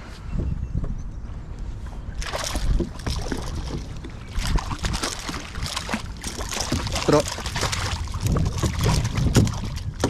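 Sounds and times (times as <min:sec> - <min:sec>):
fish thrashing and splashing: 0:02.2 - 0:10.0.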